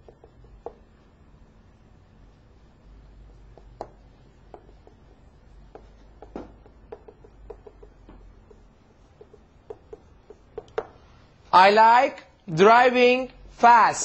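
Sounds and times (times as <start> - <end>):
writing taps and squeaks on board: 0.0 - 1.0, 3.0 - 11.0.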